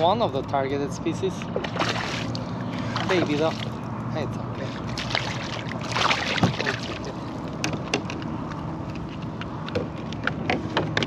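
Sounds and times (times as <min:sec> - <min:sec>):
fish splashing at surface: 0:04.7 - 0:07.1.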